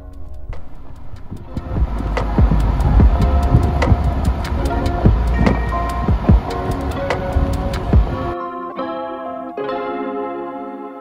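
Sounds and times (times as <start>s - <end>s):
drum beat: 1.4s - 8.2s
ringing chords: 1.4s - 11.0s.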